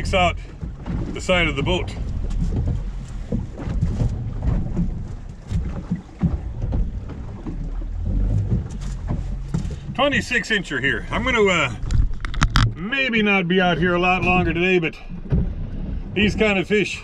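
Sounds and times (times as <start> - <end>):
knocks and bumps in boat: 0.0 - 17.0
water slapping boat hull: 0.0 - 17.0
wind buffeting microphone: 0.0 - 17.0.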